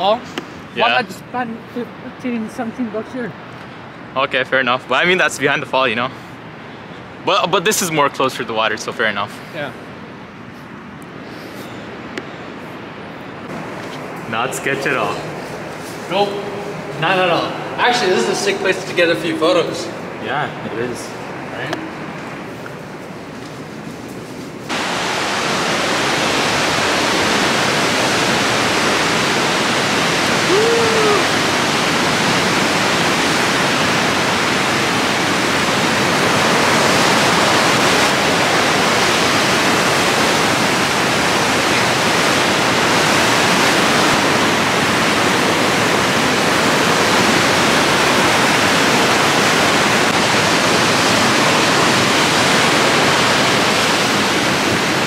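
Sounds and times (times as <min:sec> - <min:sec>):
rapids rushing: 0:13.4 - 0:22.5, 0:24.7 - 0:55.0.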